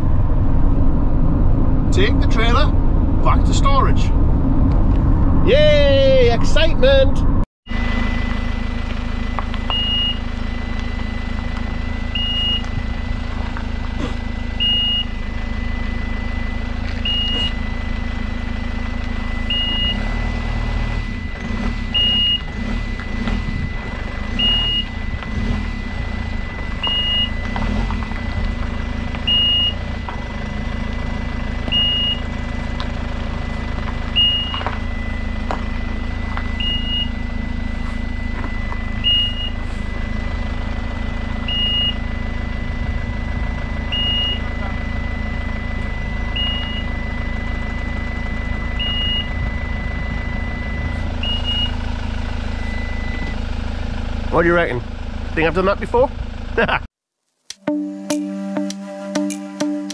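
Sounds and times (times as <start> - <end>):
steady high tone: 0.0 - 54.8
vehicle engine running: 0.0 - 56.9
short electronic beeps: 9.6 - 13.1, 14.0 - 18.3, 18.9 - 32.6, 33.3 - 53.5.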